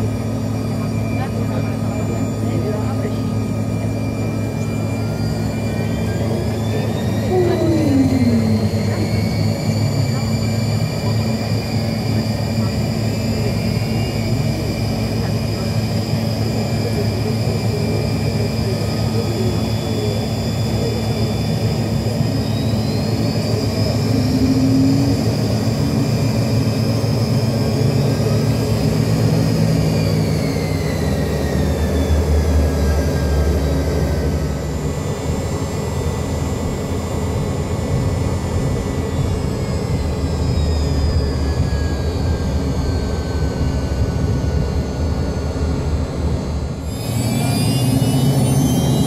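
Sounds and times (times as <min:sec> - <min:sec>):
jet engines rumbling and whining: 0:00.0 - 0:49.0.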